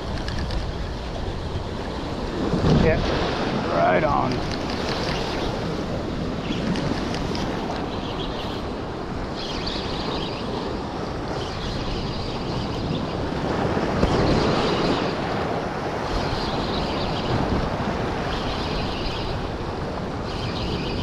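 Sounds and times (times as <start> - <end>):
ocean surf against rocks: 0.0 - 21.0
wind buffeting microphone: 0.0 - 21.0.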